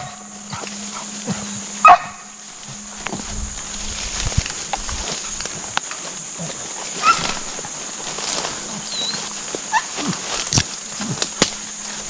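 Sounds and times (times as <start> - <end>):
dogs whining and yelping: 0.0 - 2.2, 8.8 - 10.0
steady high hiss: 0.0 - 12.0
twigs snapping underfoot: 2.5 - 12.0.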